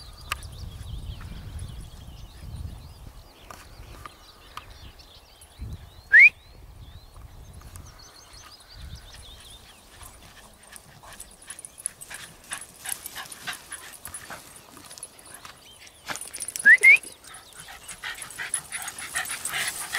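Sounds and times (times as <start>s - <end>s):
dog snuffling and panting: 9.2s - 16.5s, 17.1s - 19.9s.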